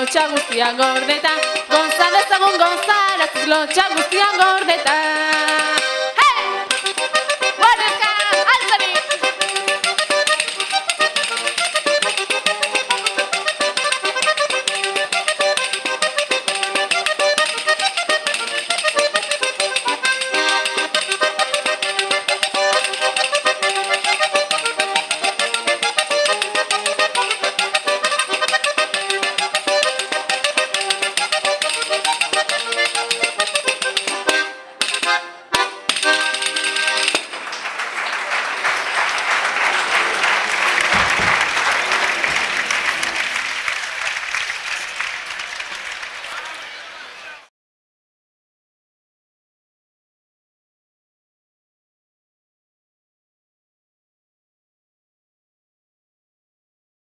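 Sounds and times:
button accordion playing folk tune: 0.0s - 37.4s.

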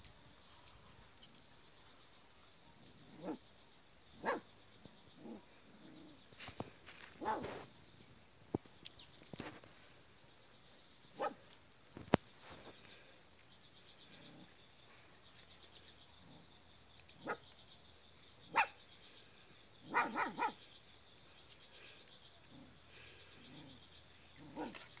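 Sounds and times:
puppies barking: 4.2s - 4.4s, 19.9s - 20.6s.

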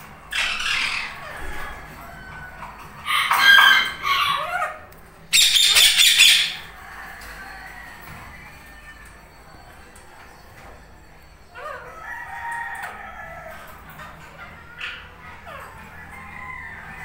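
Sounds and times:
parakeets squawking: 0.0s - 6.8s.

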